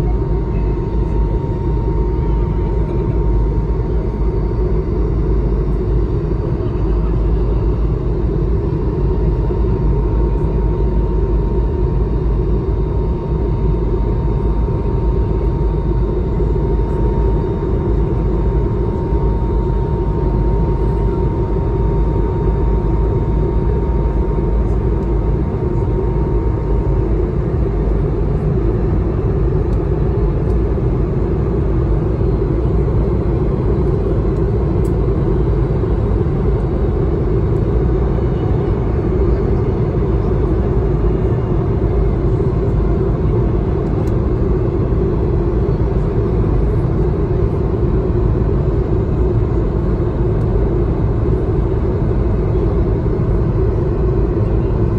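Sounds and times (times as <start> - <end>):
faint steady whine: 0.0 - 54.9
jet engine drone in cabin: 0.0 - 54.9.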